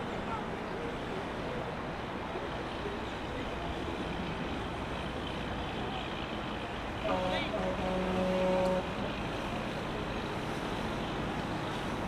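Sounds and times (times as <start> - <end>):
boat engine rumble: 0.0 - 12.0.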